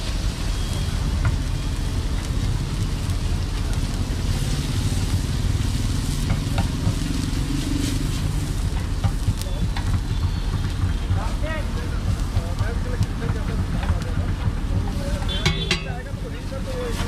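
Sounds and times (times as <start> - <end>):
egg sizzling on a griddle: 0.0 - 17.0
spatula taps: 15.1 - 16.1.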